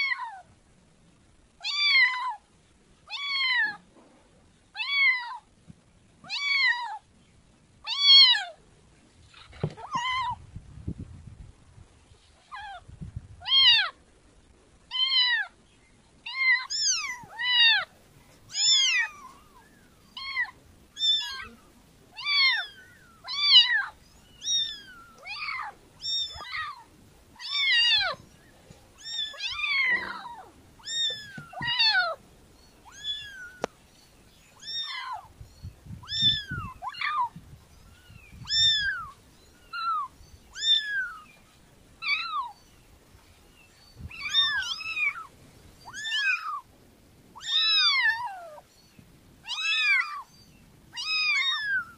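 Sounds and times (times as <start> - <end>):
kitten meowing: 16.3 - 17.9, 18.5 - 21.6, 22.2 - 28.2, 29.0 - 32.2, 32.8 - 33.8, 34.6 - 35.3, 36.0 - 37.4, 38.0 - 41.3, 44.1 - 46.6, 47.4 - 48.6, 49.5 - 50.3, 51.0 - 51.9.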